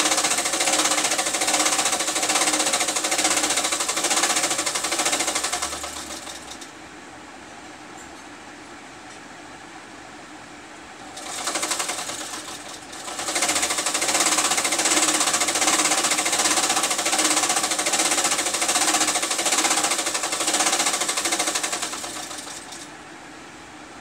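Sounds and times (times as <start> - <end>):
rapid mechanical clatter: 0.0 - 6.8, 11.0 - 22.9.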